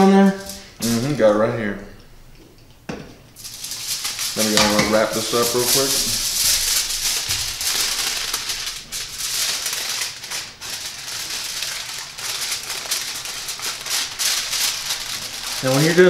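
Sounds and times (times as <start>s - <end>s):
aluminium foil crinkling: 0.2s - 1.2s, 3.4s - 16.0s.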